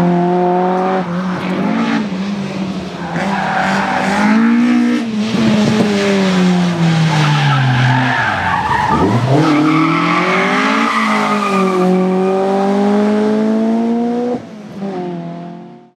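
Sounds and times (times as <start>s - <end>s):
rally car engine: 0.0s - 15.9s.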